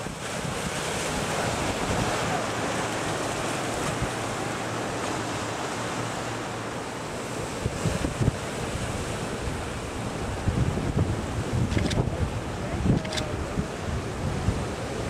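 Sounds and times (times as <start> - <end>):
surf breaking over rocks: 0.0 - 15.0
wind buffeting microphone: 0.0 - 15.0.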